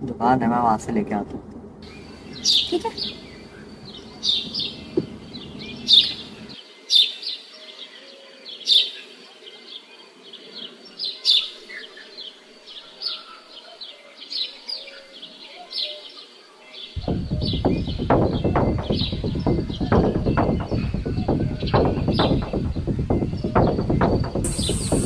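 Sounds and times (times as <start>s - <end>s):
low background rumble: 0.0s - 6.6s, 17.0s - 25.0s
birds chirping: 0.0s - 25.0s
downward sweeping bird call: 1.8s - 7.2s, 17.0s - 25.0s.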